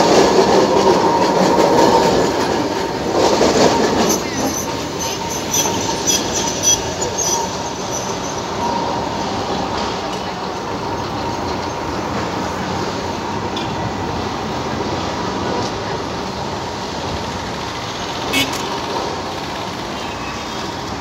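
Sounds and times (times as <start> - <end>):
tram rolling on street rails: 0.0 - 21.0
high wheel squeal: 0.9 - 12.0.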